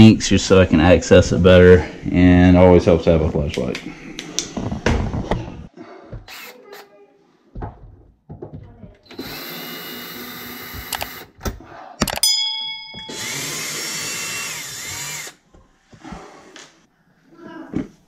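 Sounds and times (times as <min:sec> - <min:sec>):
cordless drill running: 0:09.1 - 0:11.3, 0:13.1 - 0:15.4.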